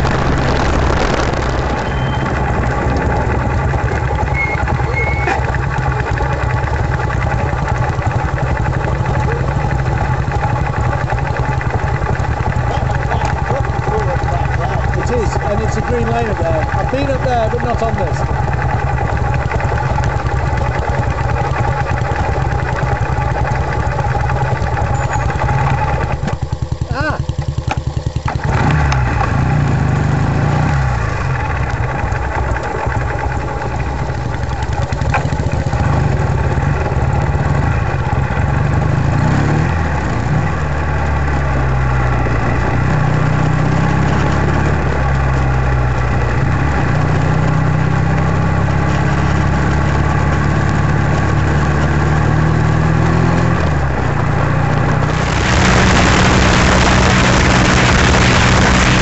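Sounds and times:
wind noise on microphone: 0:00.0 - 0:05.3, 0:55.0 - 0:59.0
motorcycle engine changing gears: 0:00.0 - 0:59.0.

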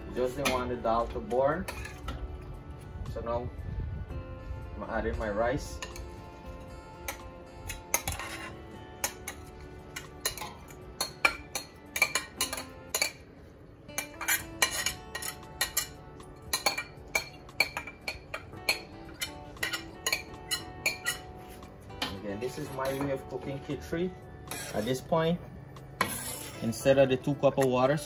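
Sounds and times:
metal spoon scraping a bowl: 0:01.6 - 0:02.2, 0:05.8 - 0:13.2, 0:14.0 - 0:23.2, 0:24.4 - 0:25.1, 0:25.9 - 0:27.0.

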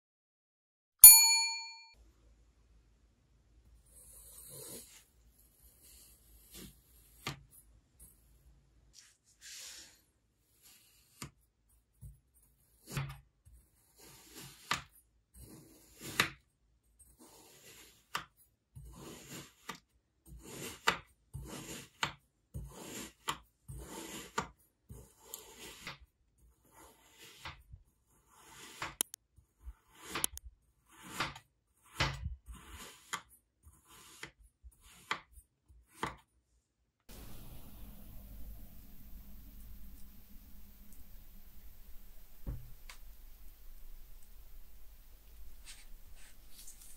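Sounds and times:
knife cutting kinetic sand: 0:03.7 - 0:36.3
low hum: 0:37.1 - 0:43.3
faint steady hiss: 0:37.1 - 0:46.9.

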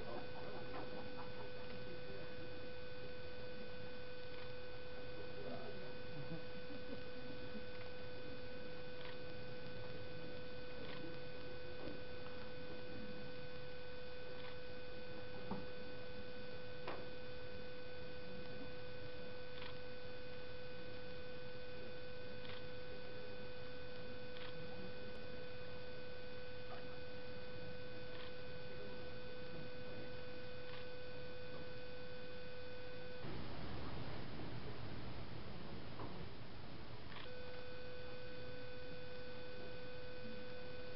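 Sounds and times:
electrical hum: 0:00.0 - 0:40.9
faint irregular clicks: 0:14.3 - 0:14.7, 0:19.5 - 0:19.9, 0:22.4 - 0:22.8, 0:24.3 - 0:25.2, 0:28.1 - 0:28.5.

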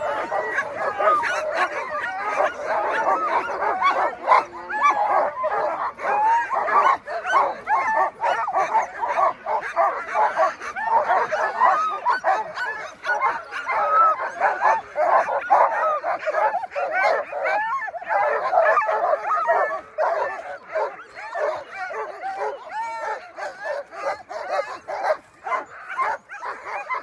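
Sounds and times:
sled dogs yelping and barking: 0:00.0 - 0:27.0.

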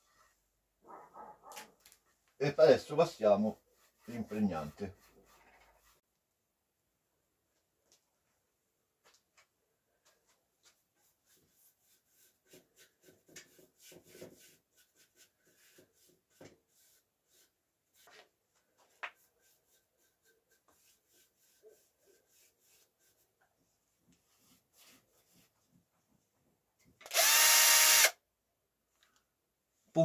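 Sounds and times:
paintbrush strokes on wood: 0:03.1 - 0:06.0, 0:10.1 - 0:25.8.

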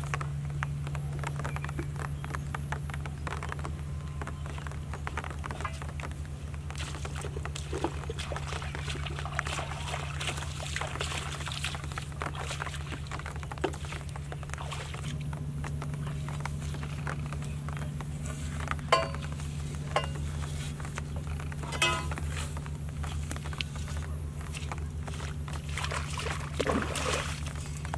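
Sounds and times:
bare feet stepping through wet grass: 0:00.0 - 0:27.9
steady low hum: 0:00.0 - 0:27.9
sharp ringing knocks: 0:18.9 - 0:19.3, 0:20.0 - 0:20.2, 0:21.8 - 0:22.2.

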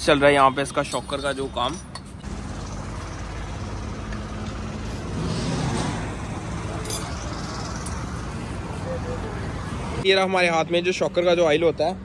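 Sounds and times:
road traffic: 0:00.0 - 0:12.0
vehicle passing: 0:02.2 - 0:10.0.

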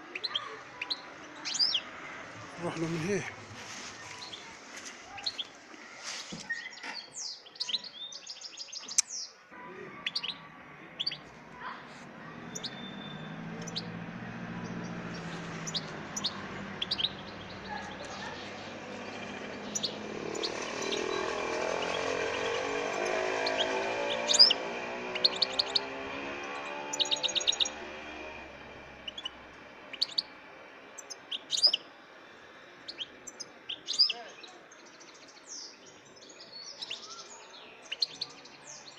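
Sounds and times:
birds chirping and twittering: 0:00.0 - 0:38.9.

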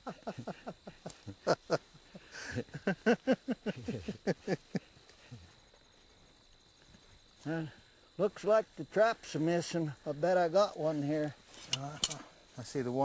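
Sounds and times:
men laughing heartily: 0:00.0 - 0:05.6.

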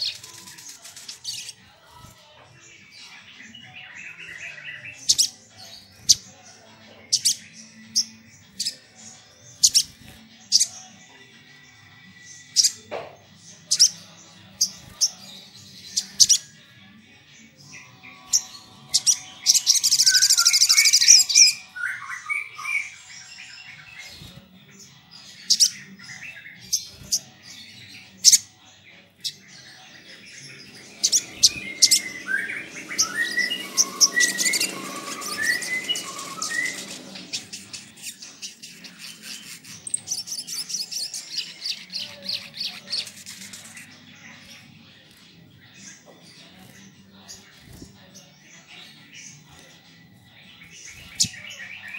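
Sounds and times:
bird trilling: 0:31.0 - 0:37.8
bird twittering: 0:31.0 - 0:43.1.

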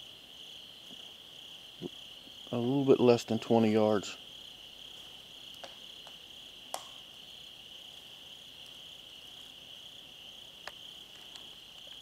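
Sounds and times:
night insects chorus: 0:00.0 - 0:12.0.

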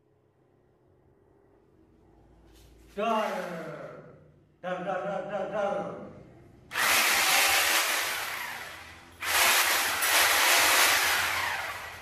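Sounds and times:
angle grinder whirring: 0:06.7 - 0:12.0.

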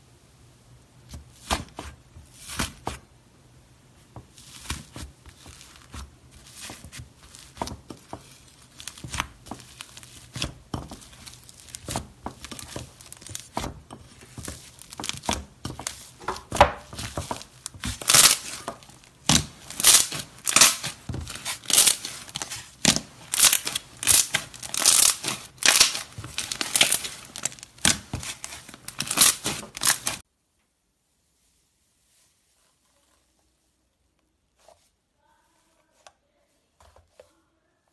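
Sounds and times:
crunchy slime crackling: 0:04.3 - 0:30.2.

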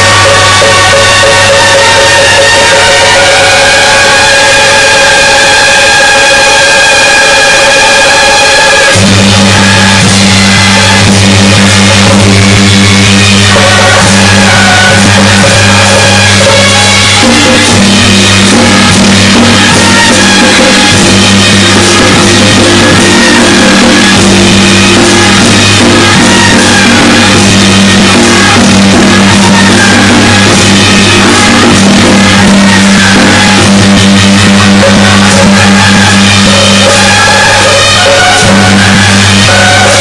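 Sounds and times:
loud music with drums: 0:00.0 - 0:40.0
steady low drone: 0:09.0 - 0:40.0.

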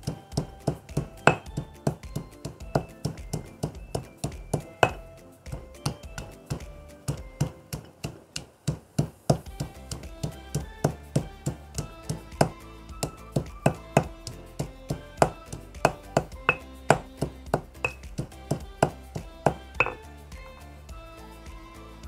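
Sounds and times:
pestle pounding in stone mortar: 0:00.0 - 0:20.0
upbeat background music: 0:00.0 - 0:22.0.

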